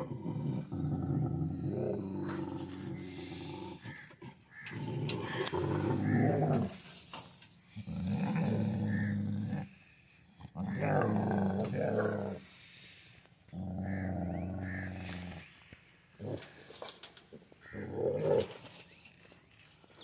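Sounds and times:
dog growling: 0.0 - 6.8, 7.8 - 12.7, 13.5 - 15.5, 17.7 - 18.6.

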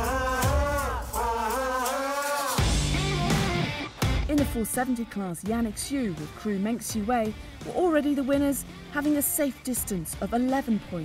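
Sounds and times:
low bass: 2.6 - 4.4.

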